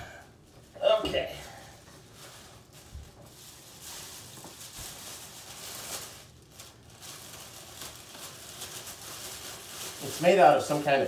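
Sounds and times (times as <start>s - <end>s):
plastic wrapping crinkling: 0.3s - 11.0s.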